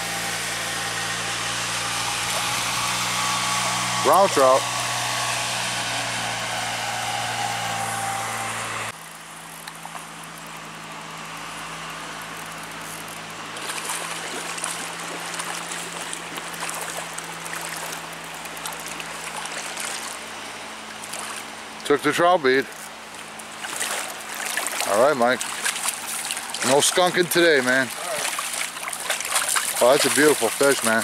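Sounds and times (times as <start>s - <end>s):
creek water running over rocks: 1.8s - 4.6s, 11.9s - 31.0s
fish thrashing at water surface: 13.5s - 20.3s, 21.0s - 21.5s, 23.2s - 31.0s.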